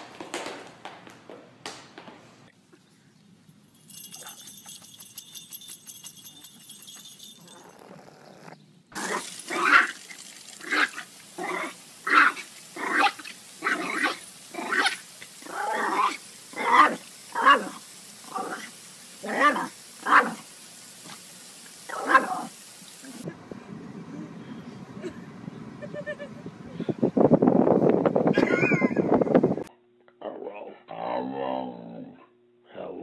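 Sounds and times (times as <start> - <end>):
garden sprinkler spraying: 3.8 - 7.6, 9.0 - 23.3.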